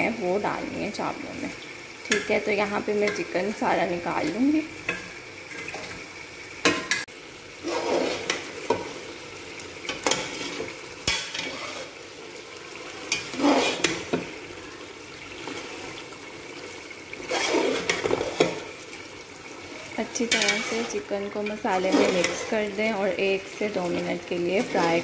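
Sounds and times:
food sizzling: 0.0s - 25.0s
spoon scraping metal pot: 7.6s - 8.8s, 10.0s - 12.0s, 13.1s - 14.2s, 17.2s - 18.6s, 20.2s - 22.8s, 23.8s - 25.0s.

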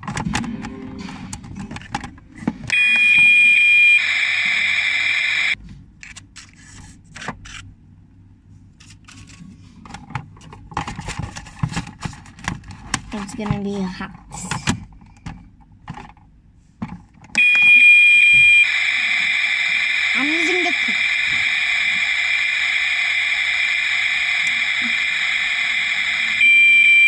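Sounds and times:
steady high electronic tone: 0.4s - 1.6s, 2.7s - 5.6s, 17.4s - 27.0s
loud hissing hum: 3.8s - 5.6s, 18.0s - 27.0s.

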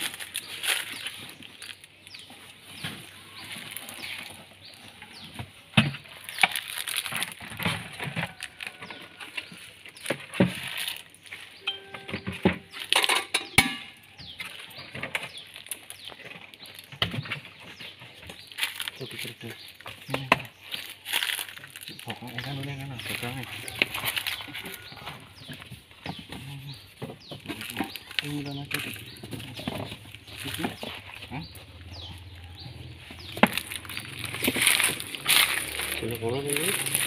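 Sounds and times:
knocks and rustles of packing boxes: 5.1s - 10.8s.

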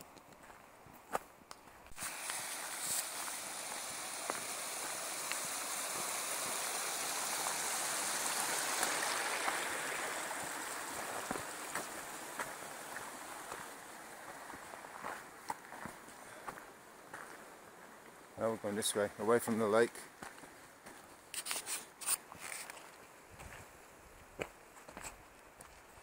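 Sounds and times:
footsteps on rocky path: 0.1s - 5.5s, 10.9s - 18.0s, 20.2s - 26.0s
stream splashing over rocks: 2.0s - 16.2s.

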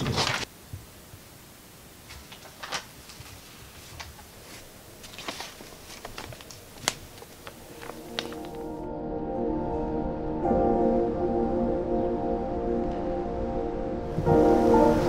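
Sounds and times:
paper rustling and crinkling: 0.0s - 0.5s, 2.0s - 8.8s
soft ambient music: 4.4s - 15.0s.

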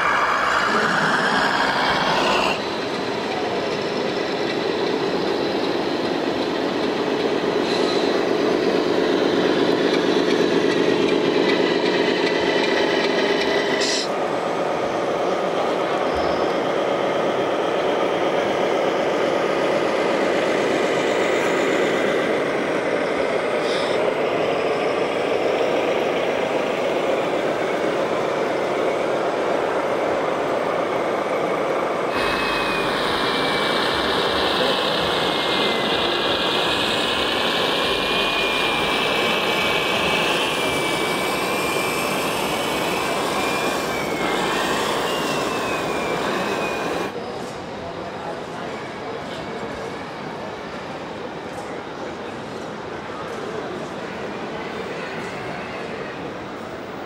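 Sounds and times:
thin wavering whine: 0.0s - 14.1s, 31.3s - 47.1s
toy truck engines: 0.0s - 47.2s.

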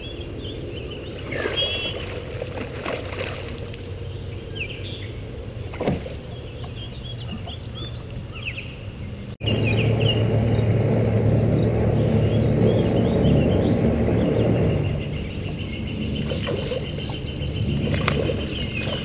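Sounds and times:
steady low hum: 0.0s - 19.0s
small birds chirping: 6.1s - 19.0s.

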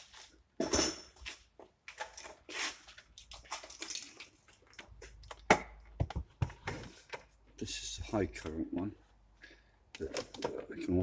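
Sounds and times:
battery charger and cables rattling: 10.0s - 11.0s.

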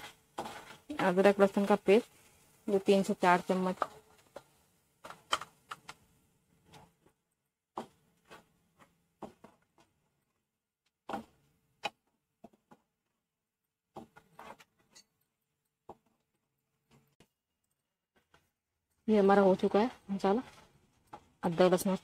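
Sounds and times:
wooden spatula scraping a metal pan: 0.0s - 4.6s, 7.8s - 9.9s, 14.0s - 15.1s.

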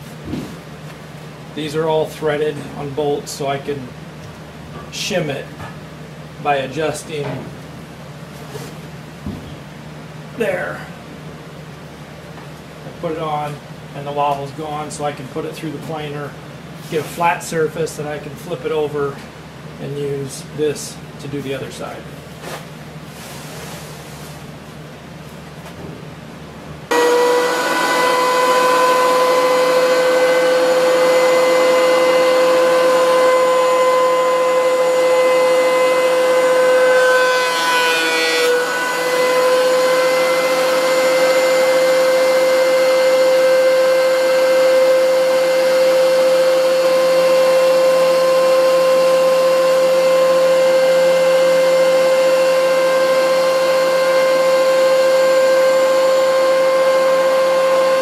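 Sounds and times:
planer cutting board: 26.9s - 58.0s
thickness planer whining: 26.9s - 58.0s.

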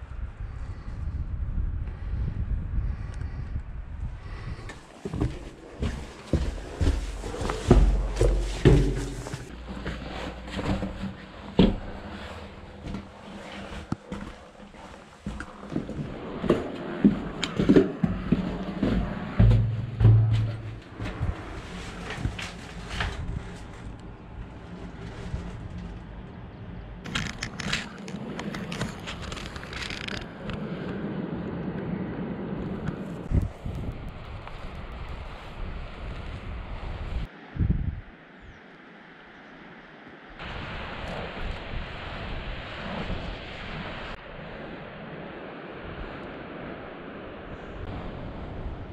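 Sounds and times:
wind rumbling on microphone: 0.0s - 48.9s
footsteps: 4.7s - 24.0s
low rumble: 5.1s - 27.1s
grass brushing against camera: 5.8s - 15.8s.

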